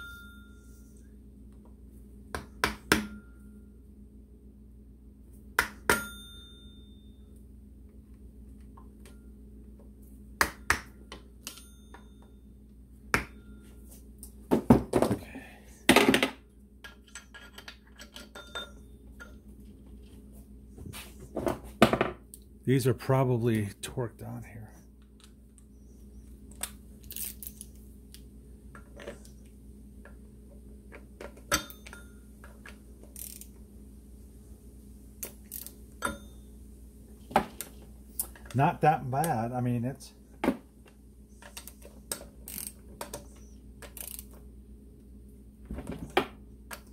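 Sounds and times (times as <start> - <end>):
metal tools clicking and knocking: 16.8 - 19.4.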